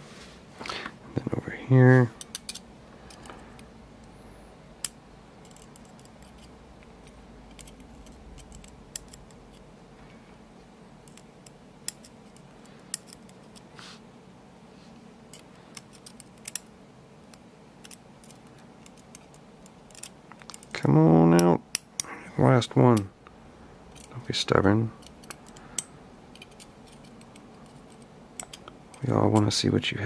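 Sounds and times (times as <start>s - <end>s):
tweezers clicking on lock pins: 4.8s - 6.5s, 7.5s - 9.4s, 25.0s - 29.5s.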